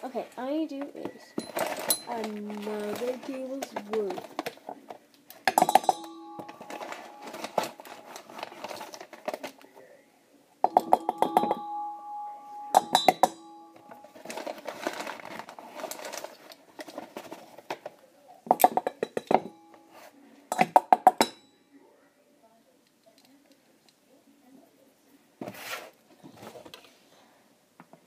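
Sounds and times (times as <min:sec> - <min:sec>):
spoon clinking metal bowl: 0:05.6 - 0:08.4, 0:10.7 - 0:11.6, 0:12.3 - 0:14.3.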